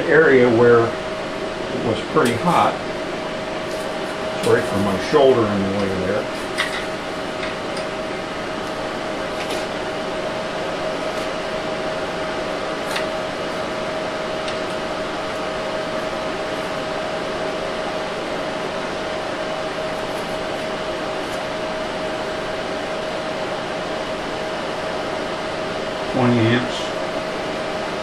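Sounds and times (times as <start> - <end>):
induction heater whirring and humming: 0.0 - 28.0.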